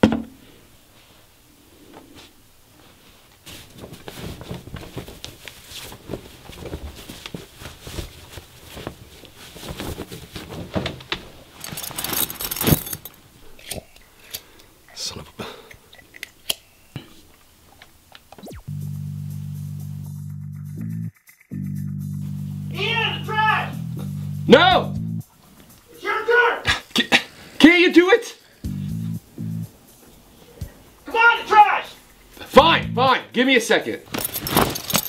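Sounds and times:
fabric rustling: 1.9 - 13.5, 34.1 - 35.0
steady low buzz: 18.5 - 25.3, 28.6 - 29.9
music: 18.5 - 27.0, 28.4 - 35.0.

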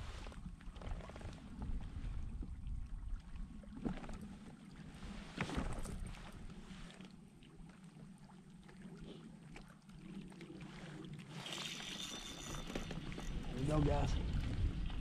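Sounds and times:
water lapping on hull: 0.0 - 15.0
spinning reel whir: 11.4 - 13.6.

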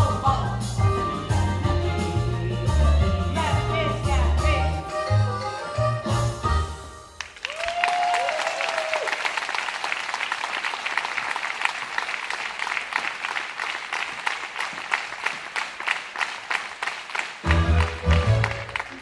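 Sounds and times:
audience applauding: 7.2 - 19.0
crowd cheering: 7.2 - 19.0.

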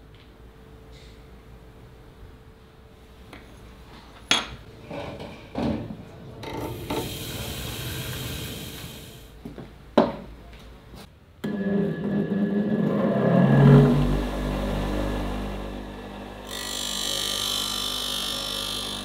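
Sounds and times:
small electric motor spinning up: 12.3 - 19.0.

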